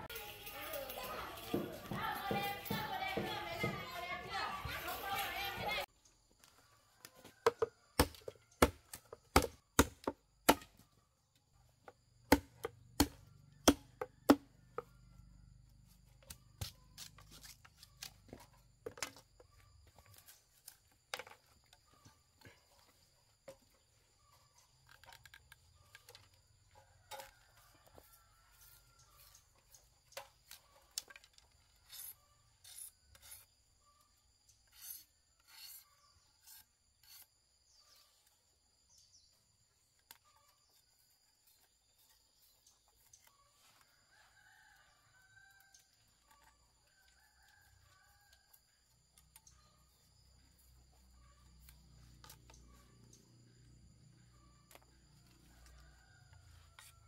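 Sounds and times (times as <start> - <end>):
blade chopping palm leaves: 8.0 - 10.8.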